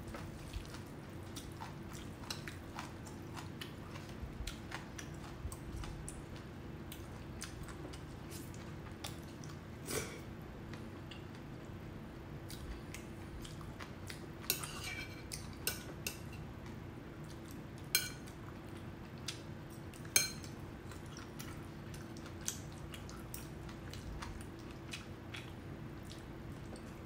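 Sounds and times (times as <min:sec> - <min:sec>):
utensils clinking on ceramic bowls: 0:14.5 - 0:16.2, 0:20.1 - 0:20.5.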